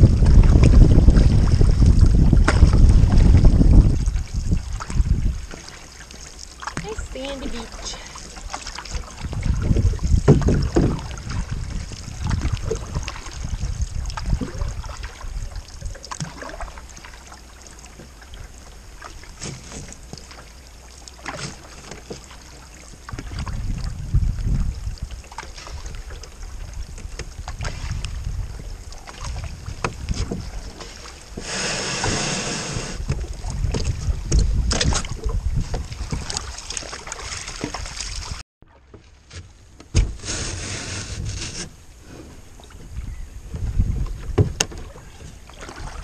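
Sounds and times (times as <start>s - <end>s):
wind buffeting microphone: 0.0s - 5.6s, 6.8s - 16.0s, 22.9s - 36.6s, 42.4s - 46.0s
water splashing against canoe bow: 0.0s - 46.0s.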